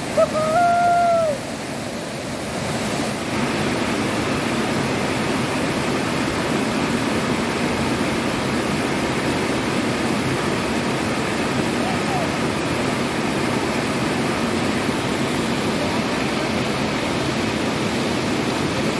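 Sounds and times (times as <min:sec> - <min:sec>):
short high hoot: 0:00.0 - 0:01.4
waterfall rushing into pool: 0:00.0 - 0:18.9.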